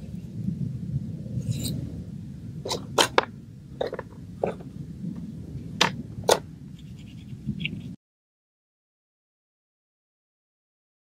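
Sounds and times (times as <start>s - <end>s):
steady low rumble: 0.0s - 8.0s.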